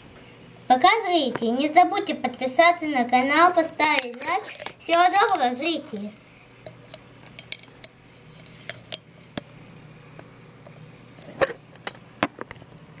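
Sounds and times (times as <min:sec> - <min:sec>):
plastic stick clinking on container: 0:03.8 - 0:06.1, 0:06.7 - 0:07.9.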